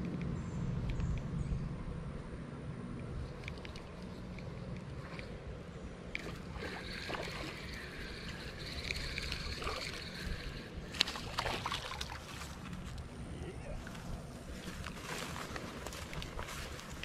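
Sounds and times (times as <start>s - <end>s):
fishing reel gears whirring: 3.2s - 13.2s
fish splashing: 6.2s - 12.8s.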